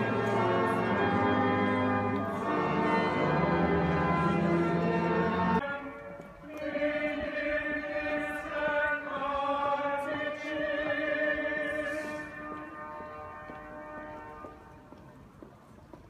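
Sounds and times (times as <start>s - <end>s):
group of voices singing slowly: 0.0s - 12.4s.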